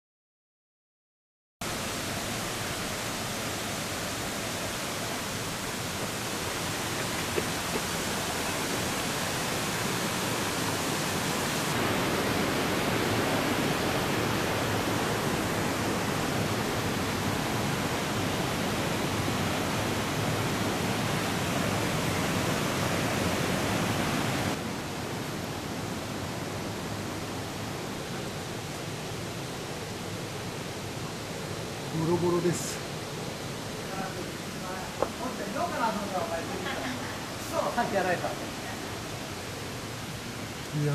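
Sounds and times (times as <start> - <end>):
river rushing over boulders: 1.6 - 40.9.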